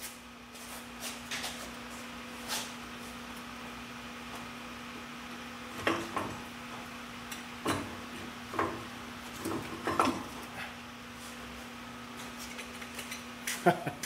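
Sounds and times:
steady low hum: 0.0s - 14.0s
metal clunks and knocks: 7.6s - 10.4s.

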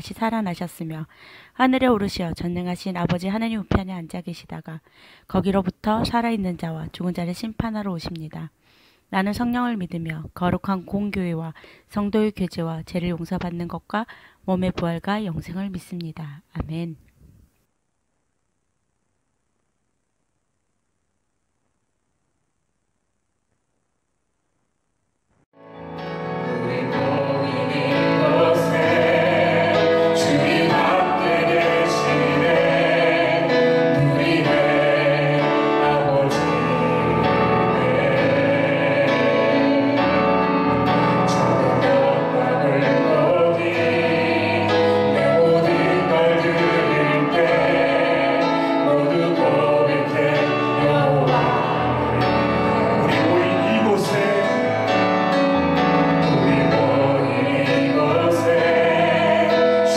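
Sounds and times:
woman and man singing: 26.5s - 54.9s, 56.3s - 59.9s.

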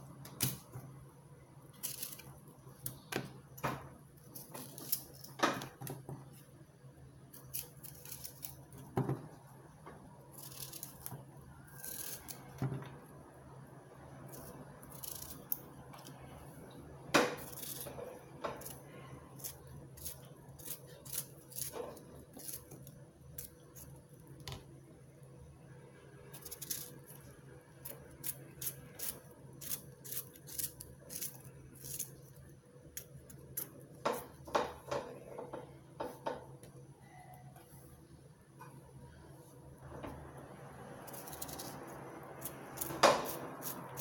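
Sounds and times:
faint steady hum: 0.0s - 44.0s.

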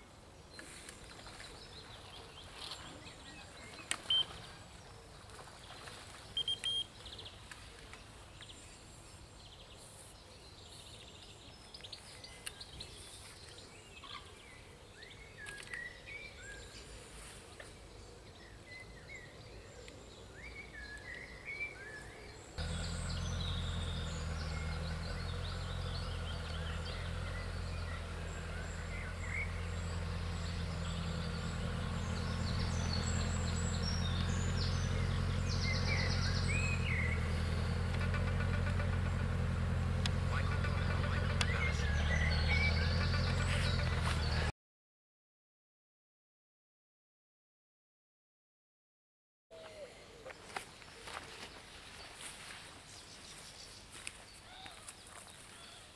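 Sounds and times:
birds singing and calling: 0.0s - 44.5s, 49.6s - 55.9s
short high beeps: 6.4s - 6.9s.

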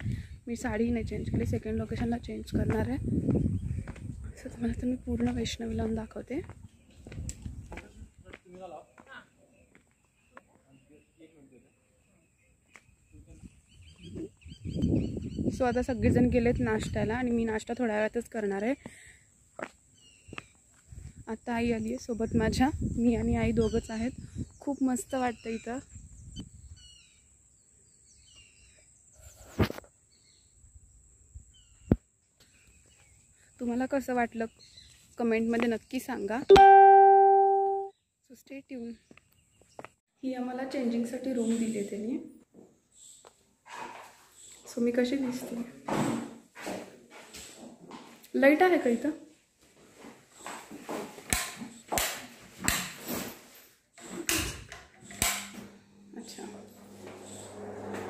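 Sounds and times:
birds chirping: 7.8s - 20.8s
steady thin high tone: 36.5s - 37.9s.

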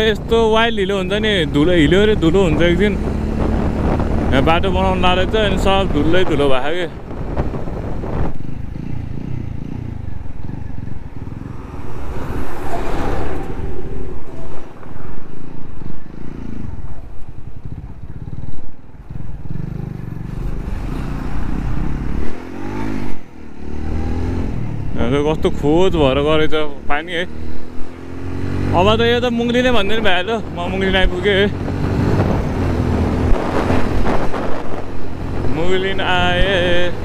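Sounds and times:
motorcycle engine at speed: 0.0s - 37.0s
passing truck: 7.0s - 26.7s.

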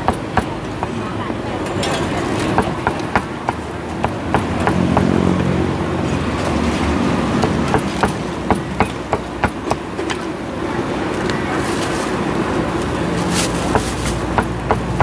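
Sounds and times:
cleaver chopping on wooden board: 0.0s - 1.0s, 2.6s - 5.2s, 7.4s - 9.8s, 13.7s - 15.0s
market din: 0.0s - 15.0s.

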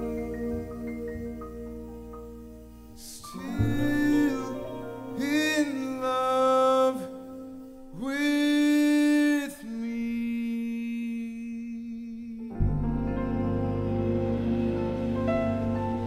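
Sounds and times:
soft jazz band accompaniment: 0.0s - 8.0s, 12.5s - 16.0s
man singing long notes: 3.0s - 13.5s.

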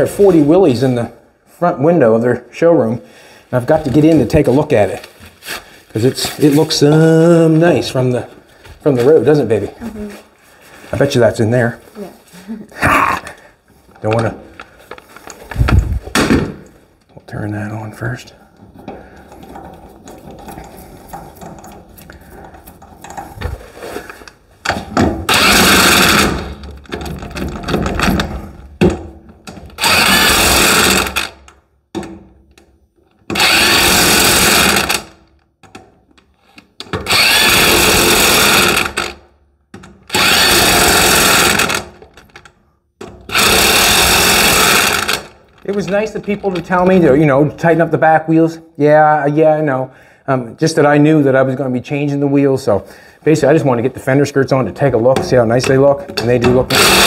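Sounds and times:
handling noise: 18.6s - 30.2s
pneumatic impact wrench bursts: 25.2s - 26.6s, 29.7s - 31.5s, 33.3s - 35.2s, 37.0s - 39.3s, 40.1s - 42.0s, 43.3s - 45.4s, 56.7s - 57.0s.

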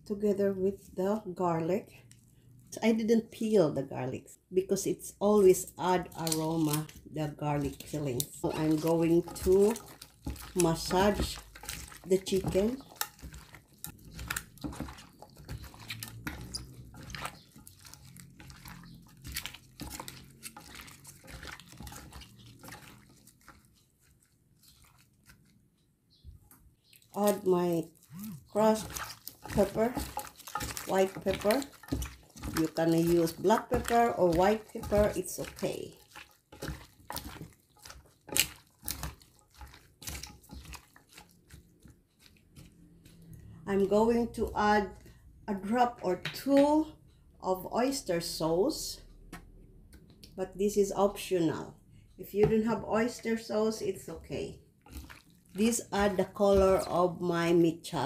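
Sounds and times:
wet squishing of raw chicken: 5.6s - 45.4s, 54.0s - 57.2s.

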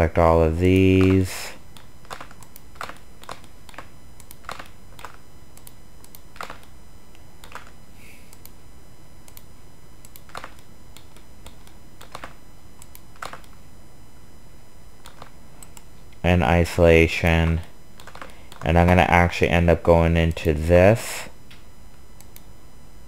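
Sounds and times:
keyboard and mouse clicking: 0.7s - 1.2s, 1.8s - 6.7s, 7.4s - 8.6s, 9.3s - 13.6s, 15.0s - 15.9s, 18.0s - 18.7s.

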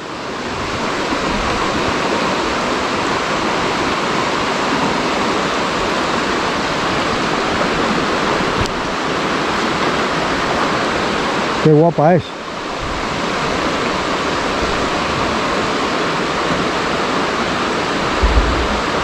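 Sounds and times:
river water flowing: 0.0s - 19.0s.

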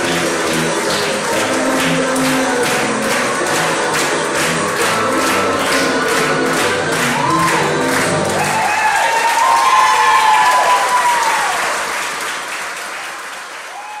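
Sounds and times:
music: 0.0s - 11.6s
audience clapping: 0.0s - 14.0s
audience cheering and whooping: 6.9s - 11.9s, 13.7s - 14.0s.

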